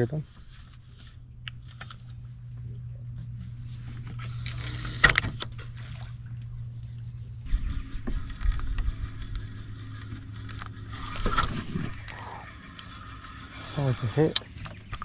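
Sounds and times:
boat motor humming: 0.0 - 15.0.

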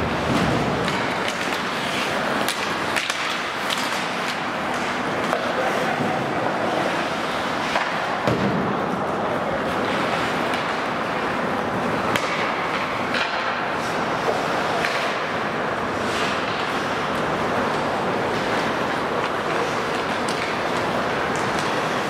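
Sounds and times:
arena noise: 0.0 - 22.0
hockey sticks and puck knocking: 0.2 - 8.9, 9.7 - 22.0
skates hissing on ice: 0.6 - 8.2, 13.4 - 22.0.

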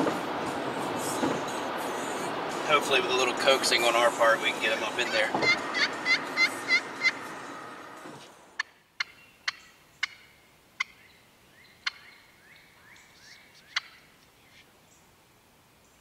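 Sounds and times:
soft rising turkey notes: 0.1 - 14.1
turkey clucking: 5.0 - 7.3, 8.6 - 11.0, 11.8 - 12.2, 13.2 - 14.0.

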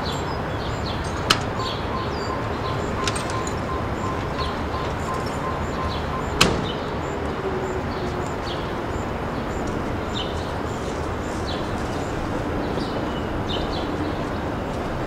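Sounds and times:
bird chirps: 0.0 - 10.5.

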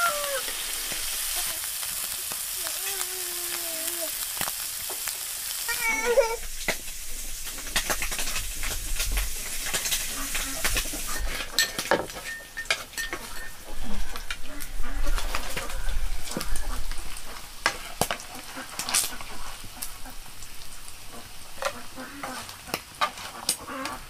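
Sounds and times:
food sizzling in a wok: 0.0 - 24.0
wooden spatula scraping a pan: 7.5 - 20.0, 21.1 - 24.0.

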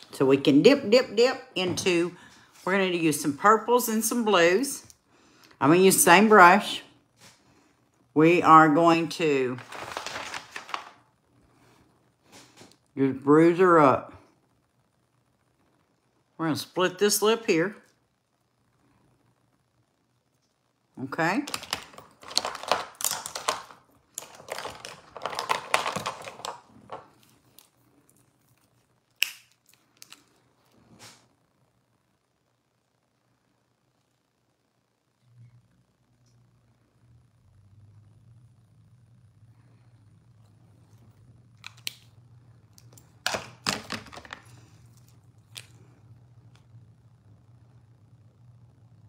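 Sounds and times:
low steady hum: 0.0 - 49.0
makeup items being handled: 9.5 - 11.0, 21.4 - 30.3, 42.8 - 45.8
makeup pencils clicking and tapping: 21.5 - 27.1.

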